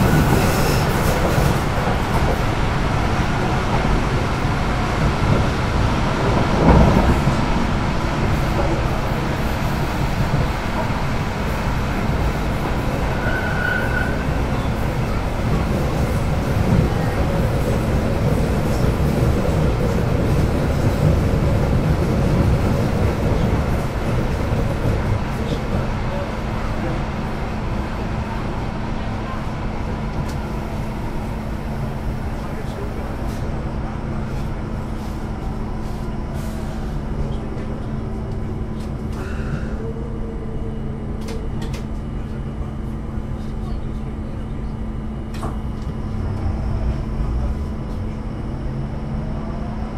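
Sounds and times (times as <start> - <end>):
light-rail wheels rumbling: 0.0 - 49.9
low rumble: 45.9 - 49.0.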